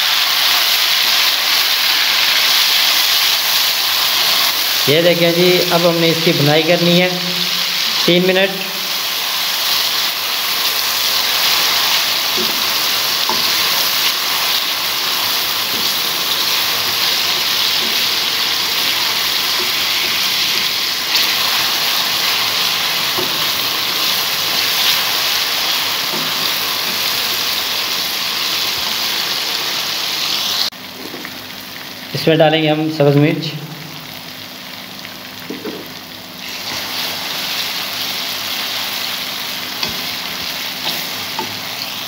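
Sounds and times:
vegetables sizzling in a wok: 0.0 - 32.7, 33.3 - 42.0
spatula scraping and tapping: 12.3 - 13.7.

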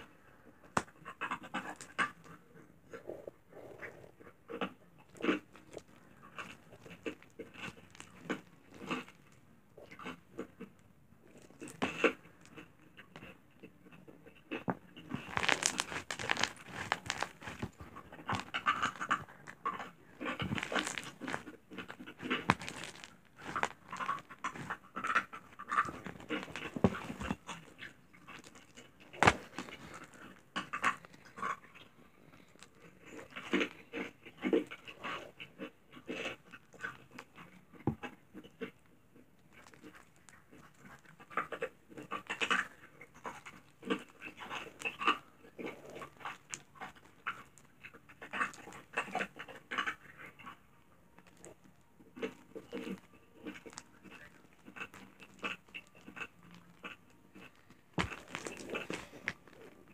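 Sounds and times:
slime pop: 15.1 - 19.2.

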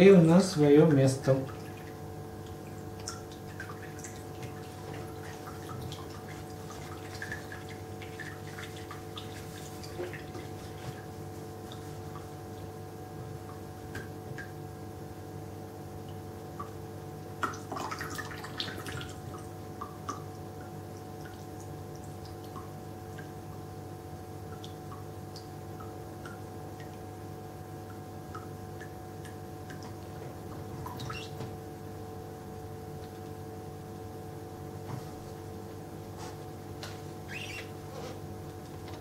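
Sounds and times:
low steady hum: 0.0 - 39.0
water trickling: 1.1 - 14.8, 16.0 - 31.7, 37.1 - 37.9
water dripping into plastic bowl: 17.4 - 23.6, 24.4 - 27.1, 27.8 - 31.6.

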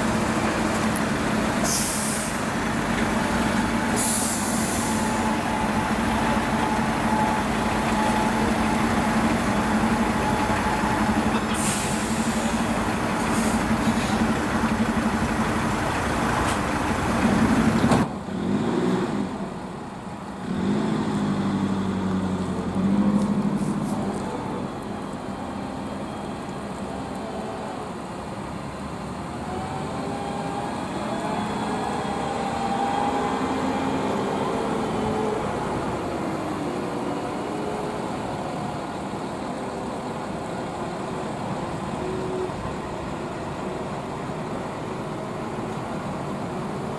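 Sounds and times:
wheel loader driving past: 0.0 - 27.8
diesel trucks driving past: 0.0 - 46.9
air brake hisses: 1.6 - 2.5, 3.9 - 5.4, 11.4 - 12.6, 13.2 - 14.2.

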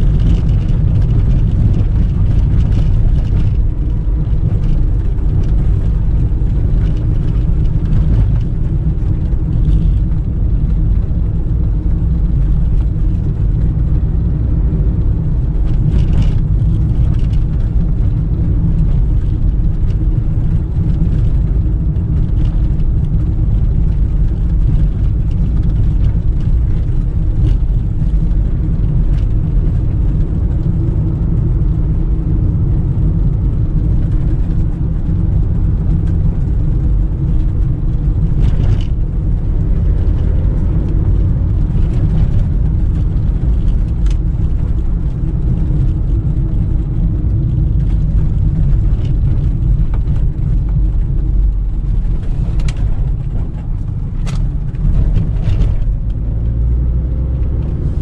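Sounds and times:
car engine and road rumble: 0.0 - 58.0.

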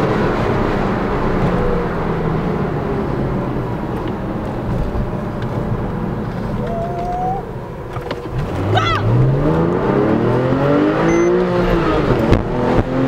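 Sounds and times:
car engine at low revs: 0.0 - 13.0
tyre and road noise: 0.0 - 13.0
faint rising tone: 6.6 - 7.6.

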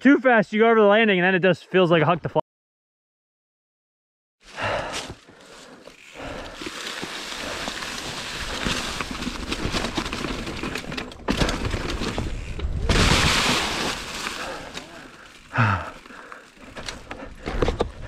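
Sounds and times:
bike tyres crunching on dirt: 4.6 - 18.0
bike rattling: 5.1 - 18.0.

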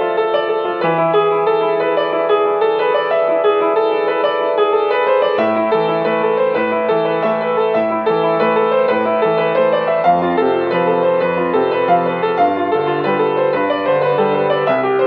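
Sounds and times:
upright piano playing: 0.0 - 15.0.

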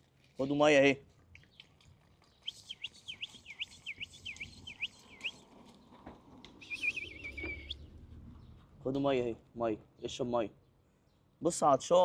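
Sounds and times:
bird calling: 2.4 - 5.9, 6.5 - 8.6.

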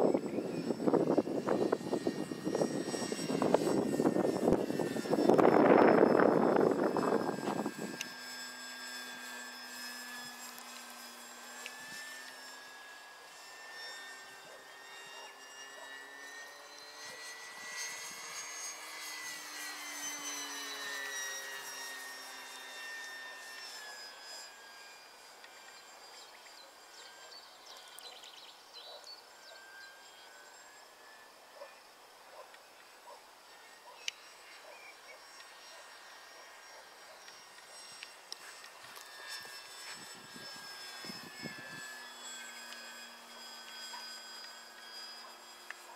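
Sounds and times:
model plane motor whining: 0.0 - 45.9.

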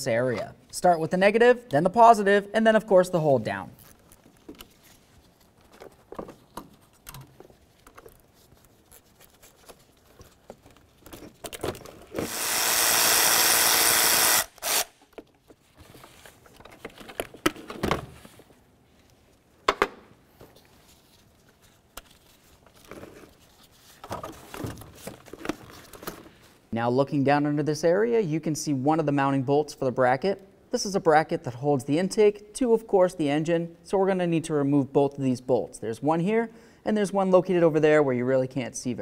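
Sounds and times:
cordless power tool running: 12.2 - 15.0.

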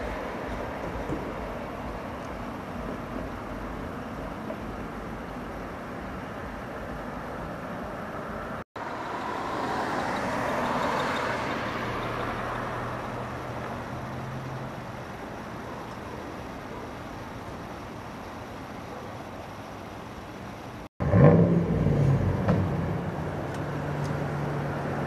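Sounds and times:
steady traffic noise: 0.0 - 25.0
car driving past: 8.4 - 13.2, 21.0 - 25.0.

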